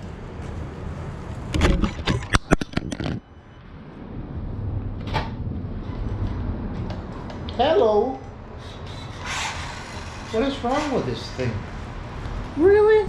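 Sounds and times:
rumble with clicks: 1.3s - 3.2s.

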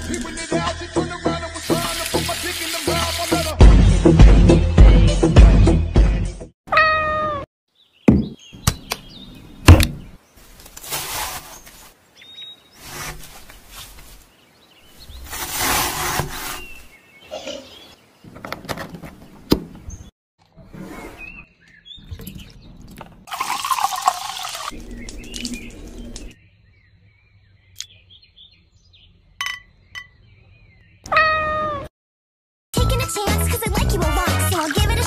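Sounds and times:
cat meowing: 6.7s - 7.4s, 31.1s - 31.9s
liquid poured into glass: 23.3s - 25.7s.

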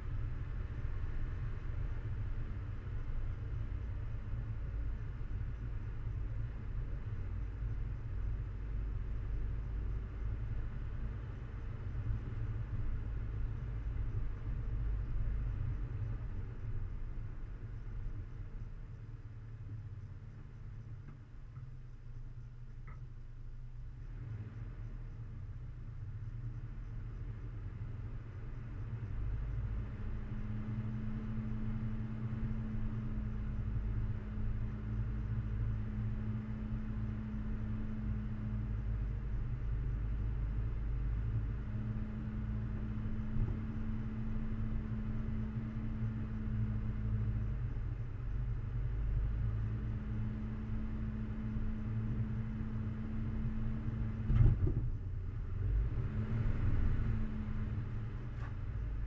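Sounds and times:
off-road vehicle engine rumble: 0.0s - 59.0s.

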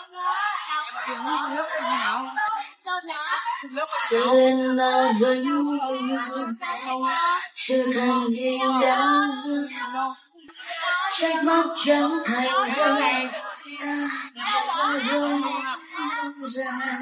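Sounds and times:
person singing unaccompanied: 0.0s - 17.0s.

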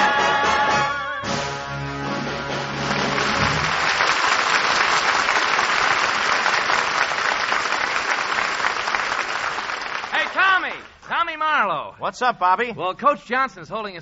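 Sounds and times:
audience applause: 2.5s - 11.0s.

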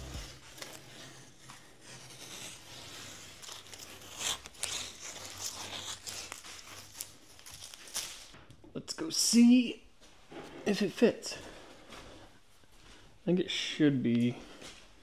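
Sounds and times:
tape peeling and crinkling: 0.0s - 8.4s.

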